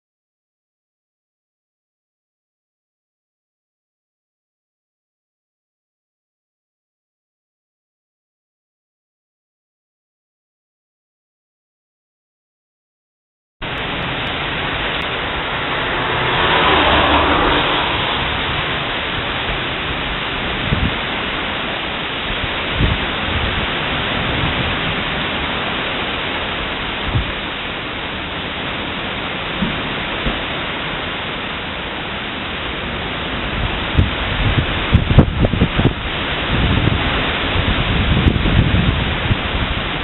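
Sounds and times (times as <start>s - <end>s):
heavy rain pouring on road: 13.6s - 40.0s.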